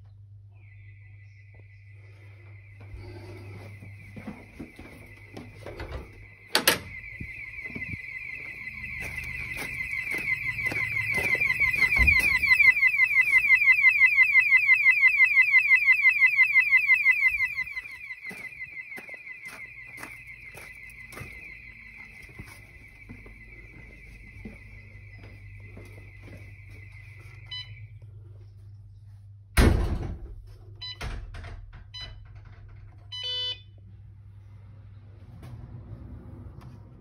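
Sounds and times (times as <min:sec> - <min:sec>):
fast-warbling alarm bell siren: 0:00.5 - 0:28.6
high electronic siren tone: 0:00.5 - 0:28.7.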